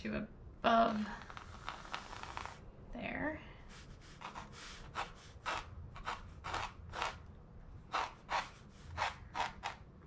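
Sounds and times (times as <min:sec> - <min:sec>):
pencil scratching on paper: 0:01.2 - 0:02.6, 0:03.7 - 0:07.2, 0:07.9 - 0:09.8.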